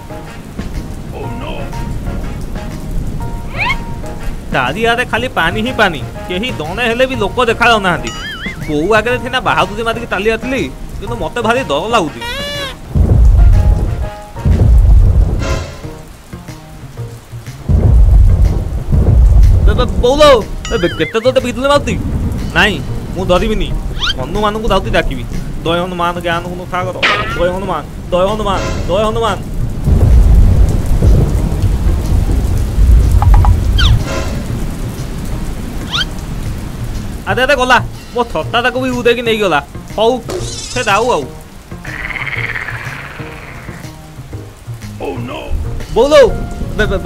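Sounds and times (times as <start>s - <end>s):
thunder rumble: 0.0s - 11.5s, 12.2s - 16.2s, 17.5s - 38.0s
rain falling: 0.0s - 47.0s
rolls of thunder: 12.9s - 15.6s, 17.7s - 20.6s, 27.0s - 35.6s.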